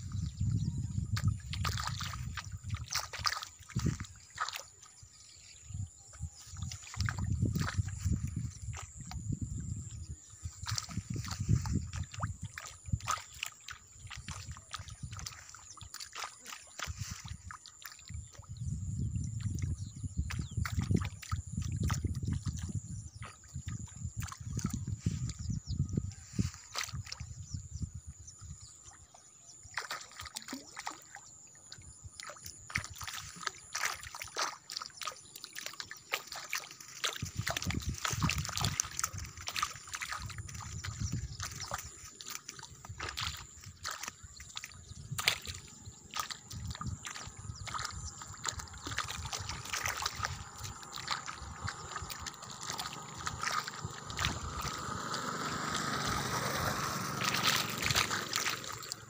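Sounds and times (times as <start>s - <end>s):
pond water sloshing: 0.0s - 59.0s.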